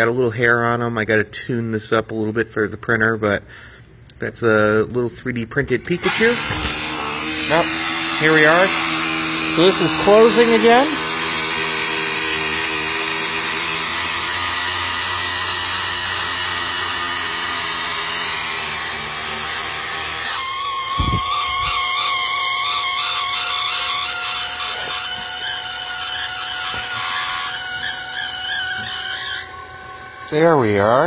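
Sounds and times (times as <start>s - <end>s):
wavering whine: 6.6s - 31.0s.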